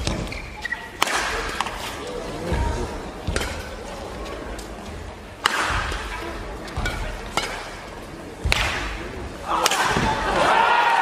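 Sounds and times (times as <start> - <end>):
racket hitting shuttlecock: 0.0 - 4.0, 4.6 - 10.4
crowd cheering and shouting: 9.5 - 11.0.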